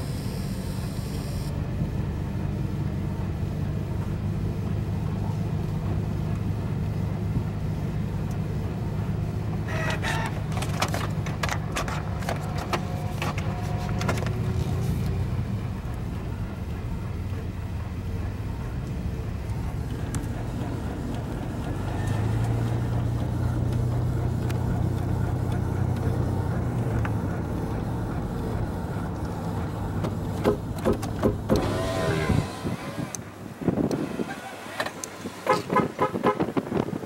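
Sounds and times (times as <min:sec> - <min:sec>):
vehicle engine and road drone: 0:00.0 - 0:37.0
irregular clicks and rattles: 0:09.7 - 0:33.2.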